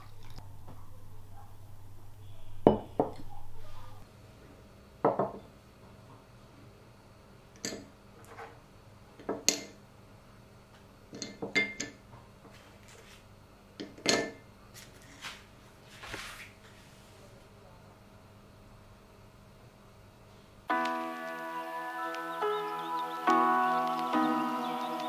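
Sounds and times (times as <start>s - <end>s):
ceramic dishes clinking on table: 2.6s - 3.3s, 11.2s - 12.0s.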